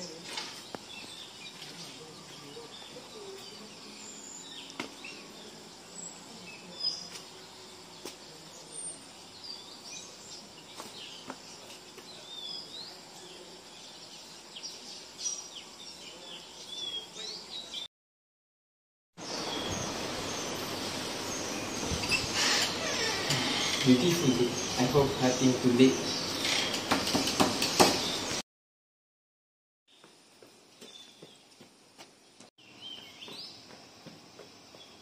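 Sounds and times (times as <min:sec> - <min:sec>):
steady background hiss: 0:00.0 - 0:17.8, 0:19.2 - 0:28.4
small birds chirping: 0:00.0 - 0:17.9, 0:19.2 - 0:28.4, 0:29.9 - 0:35.0.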